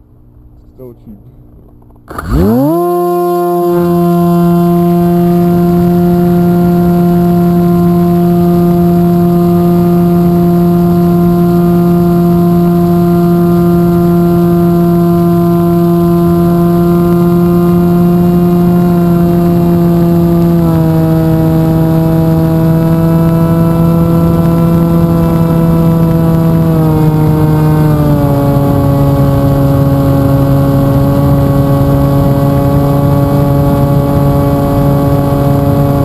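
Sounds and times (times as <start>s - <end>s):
electric motor and propeller drone: 1.5s - 36.0s.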